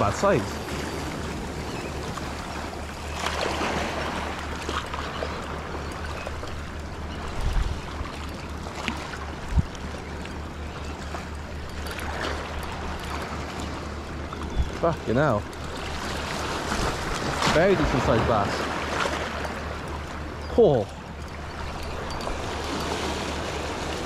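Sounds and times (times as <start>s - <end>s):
wind buffeting microphone: 0.0s - 8.2s, 9.3s - 9.9s
water lapping over rocks: 0.0s - 13.8s, 14.4s - 24.0s.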